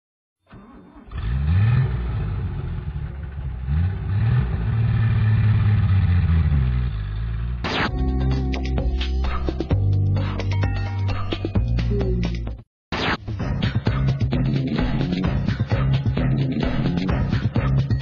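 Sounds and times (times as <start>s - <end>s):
van engine revving: 0.5s - 7.8s
music: 7.8s - 18.0s.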